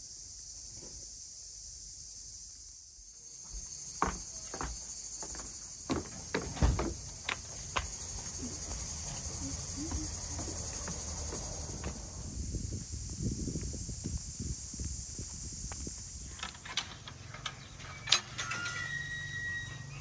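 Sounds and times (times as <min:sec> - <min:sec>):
insects chirring: 0:00.0 - 0:20.0
sharp knocks and thumps: 0:04.0 - 0:08.0.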